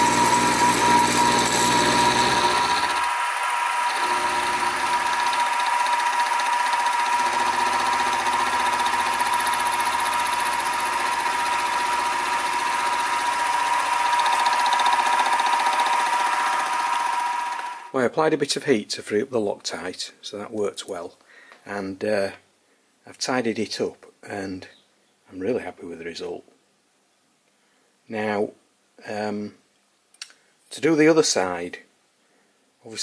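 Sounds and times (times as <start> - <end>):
milling spindle whine: 0.0 - 17.9.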